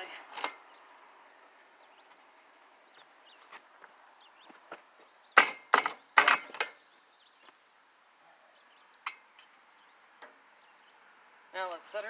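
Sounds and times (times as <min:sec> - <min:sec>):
wooden and metal knocks and creaks: 0:05.4 - 0:06.8.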